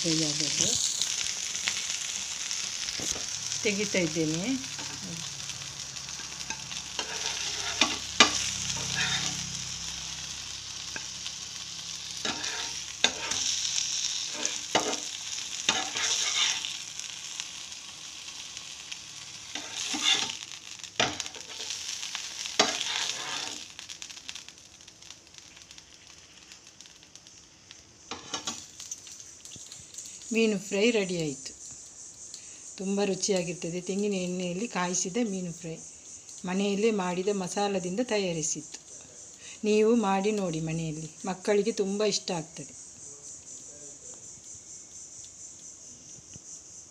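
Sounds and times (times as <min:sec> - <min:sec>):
fish sizzling in oil: 0:00.0 - 0:46.9
steel spatula clicking and scraping: 0:06.2 - 0:09.5, 0:12.2 - 0:16.8, 0:19.5 - 0:23.7.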